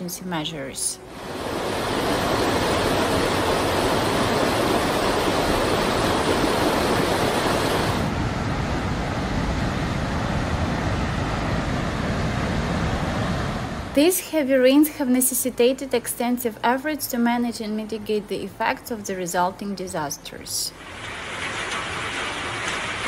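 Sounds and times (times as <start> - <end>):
churning flood river: 1.0 - 14.1, 20.8 - 23.0
floodwater pouring off bridge: 1.1 - 8.1, 20.8 - 23.0.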